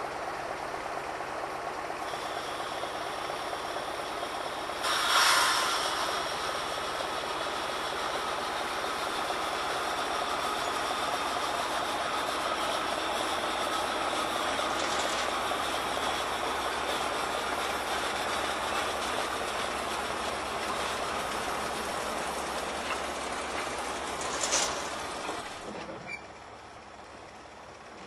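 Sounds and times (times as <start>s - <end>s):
diesel locomotive running: 0.0s - 28.0s
wheels rolling on rails: 0.0s - 28.0s
sharp high-pitched noise: 4.8s - 7.0s.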